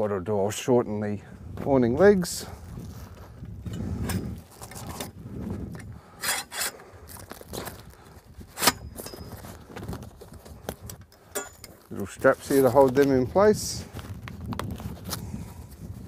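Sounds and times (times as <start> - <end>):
poles and canvas scraping: 3.9 - 10.9.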